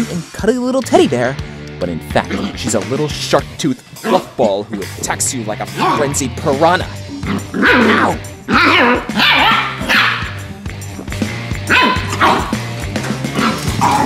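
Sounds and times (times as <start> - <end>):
background music with steady beat: 0.0 - 14.0
dogs barking and yipping: 5.8 - 6.2, 7.3 - 10.4, 11.6 - 14.0.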